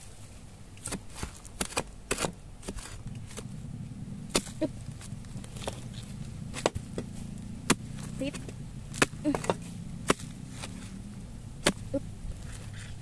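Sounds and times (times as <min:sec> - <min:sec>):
low steady hum: 0:00.0 - 0:13.0
hand spade striking stony clay: 0:00.8 - 0:03.4, 0:04.3 - 0:04.6, 0:06.5 - 0:10.9, 0:11.6 - 0:12.0.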